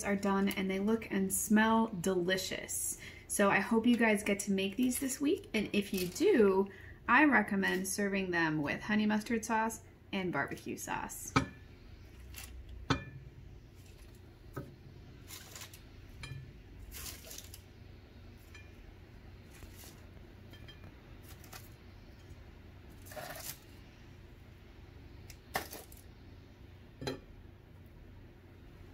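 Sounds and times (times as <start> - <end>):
foil crinkling: 5.8 - 6.3, 15.2 - 15.8, 16.8 - 17.7, 19.5 - 20.1, 22.9 - 23.8.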